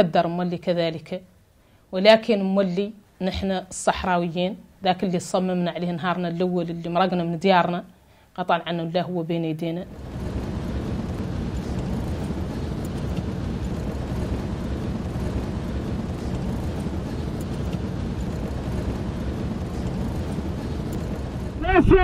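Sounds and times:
vehicle engine and road rumble: 9.9 - 22.0.

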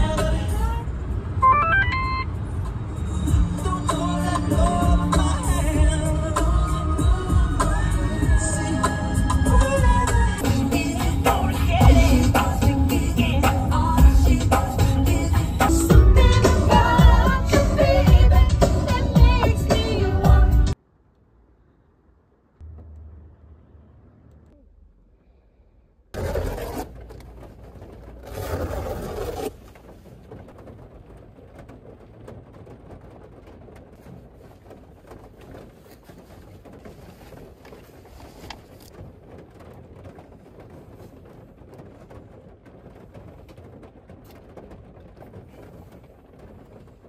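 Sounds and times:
raindrops ticking: 3.2 - 20.1, 29.5 - 47.0
steady rain falling: 29.5 - 47.0.

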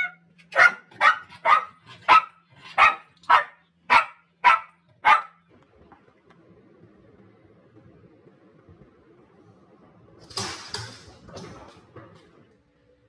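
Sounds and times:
dog barking: 0.0 - 5.4.

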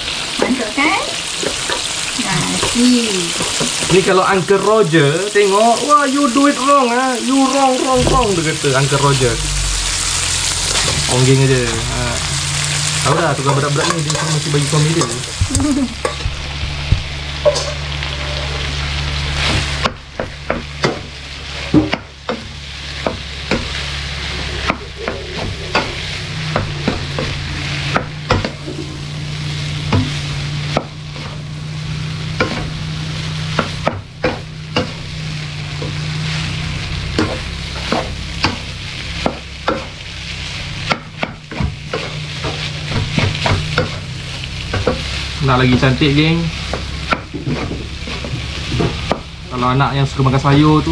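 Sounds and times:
rice sizzling in a wok: 0.0 - 50.9
spatula scraping a pan: 11.7 - 31.4.

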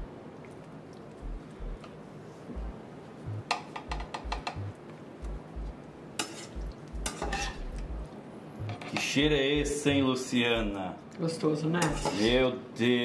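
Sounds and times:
metal spoon scraping a pan: 6.2 - 7.6, 11.8 - 12.4.

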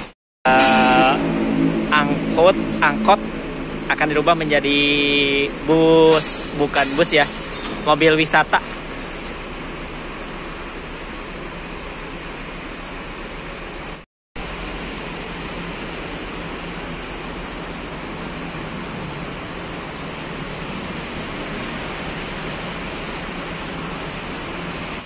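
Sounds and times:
steady rushing noise: 0.0 - 13.0.

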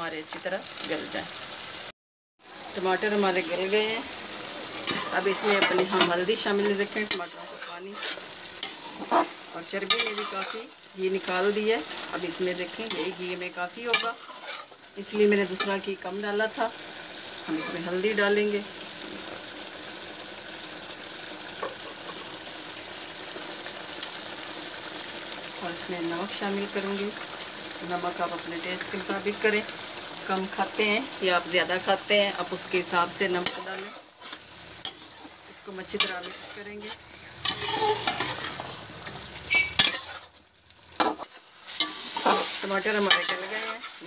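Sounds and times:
meat sizzling in fat: 0.0 - 44.0
metal spoon scraping a pot: 7.0 - 10.7, 13.9 - 14.8, 33.4 - 35.3, 35.9 - 40.3, 41.0 - 44.0.

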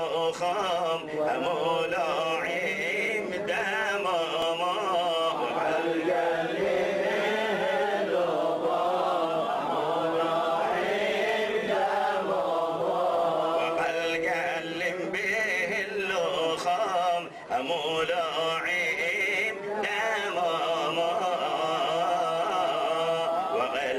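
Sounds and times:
man chanting into microphone: 0.0 - 7.7, 13.2 - 23.9.

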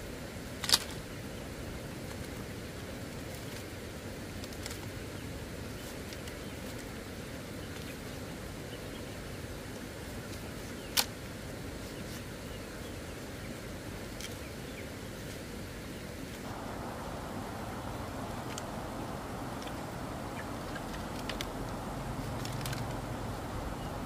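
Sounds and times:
steady background hiss: 0.0 - 24.0
bamboo strips clicking and rustling: 0.6 - 1.1, 2.0 - 5.0, 5.7 - 7.0, 9.8 - 11.3, 14.1 - 14.5, 18.4 - 18.8, 19.4 - 20.0, 20.6 - 23.4.

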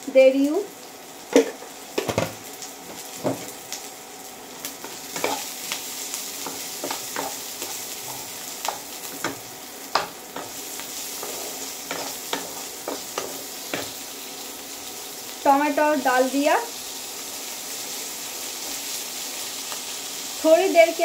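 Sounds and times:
food sizzling in oil: 0.0 - 21.0
wooden spatula scraping a pan: 10.4 - 13.9.

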